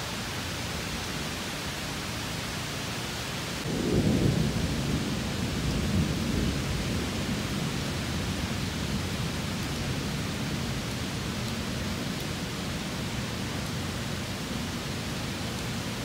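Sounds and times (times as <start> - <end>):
heavy rain hissing: 0.0 - 16.0
thunder rumbling: 3.6 - 16.0.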